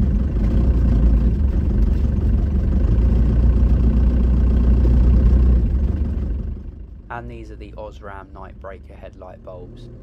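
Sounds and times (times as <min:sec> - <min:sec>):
road noise on rough track: 0:00.0 - 0:10.0
van engine rumble: 0:00.0 - 0:10.0.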